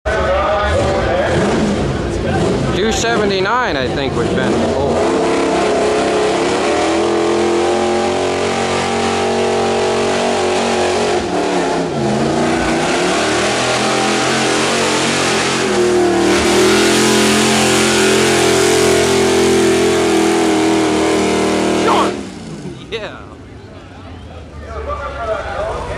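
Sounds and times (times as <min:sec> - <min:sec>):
truck engine revving under load: 0:00.6 - 0:23.5.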